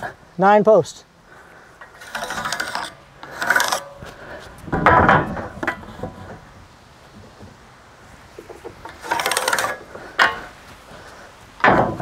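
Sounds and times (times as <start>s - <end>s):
bar scraping wooden posts: 1.7s - 12.0s.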